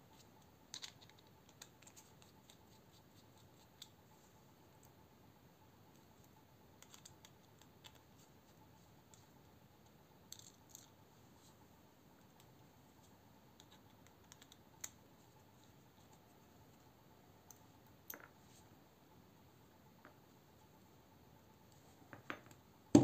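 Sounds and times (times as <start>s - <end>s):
small metal clicks and taps: 13.6s - 15.0s.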